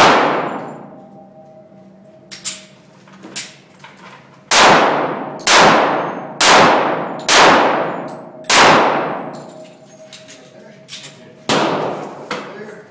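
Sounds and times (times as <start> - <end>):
pistol shots echoing indoors: 0.0 - 1.7, 2.3 - 2.8, 4.5 - 12.3.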